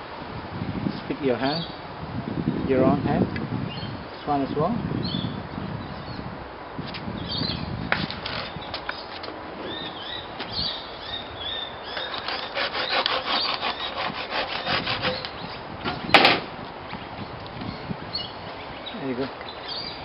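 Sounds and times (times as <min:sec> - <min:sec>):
hand saw cutting branch: 0:11.9 - 0:15.4.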